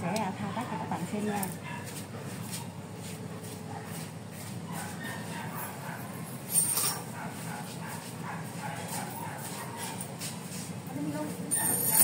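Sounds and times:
dog making faint sounds: 3.4s - 6.2s, 7.1s - 10.2s.

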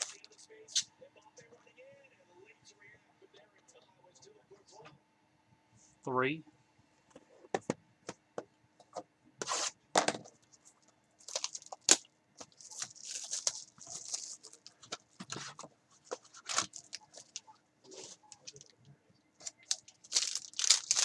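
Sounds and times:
cellophane crinkling as torn: 11.2s - 18.7s, 19.4s - 21.0s.

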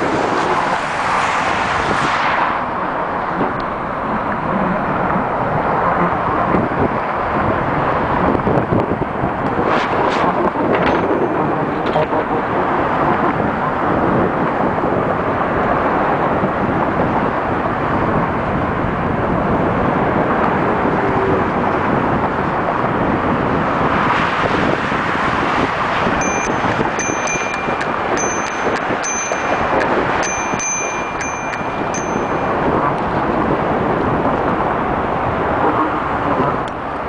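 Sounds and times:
highway traffic rushing: 0.0s - 37.0s
wind noise on microphone: 0.0s - 37.0s
short high-pitched rings: 26.2s - 32.8s.

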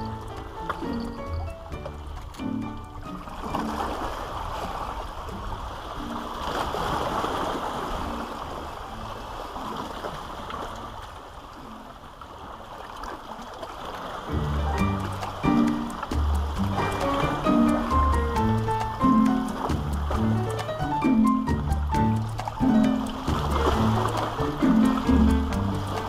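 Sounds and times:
sea water washing among rocks: 0.0s - 26.0s
low wind rumble: 14.2s - 26.0s.

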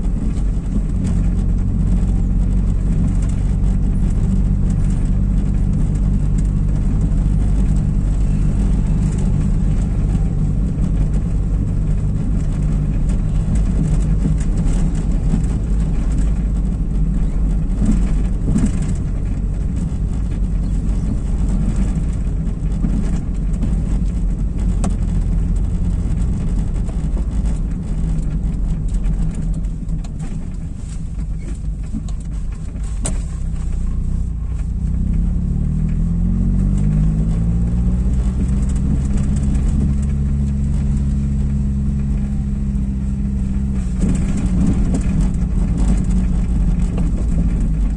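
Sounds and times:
car engine and road noise: 0.0s - 47.9s.

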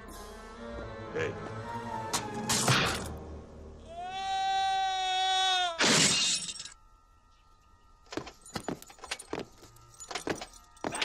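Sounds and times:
man screaming: 3.9s - 5.8s.

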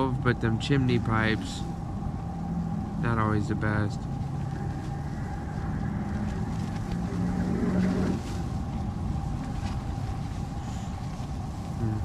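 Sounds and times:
wind buffeting tent: 0.0s - 12.0s.

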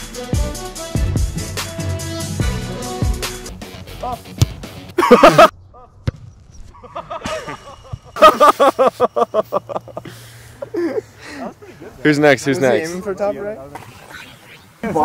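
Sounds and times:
young men laughing: 4.8s - 5.9s, 6.8s - 12.4s, 14.8s - 15.0s.

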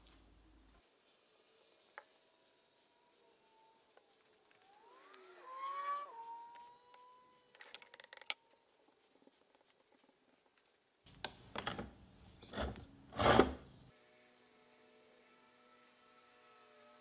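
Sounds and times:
wooden blocks clicking and knocking: 7.5s - 8.6s
rasping strokes on wood: 12.4s - 13.7s.

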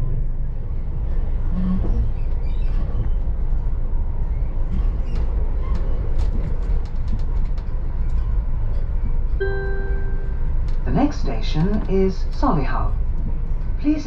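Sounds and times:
train coach rumbling at speed: 0.0s - 14.0s
faint clicks and rattles: 4.7s - 9.3s.

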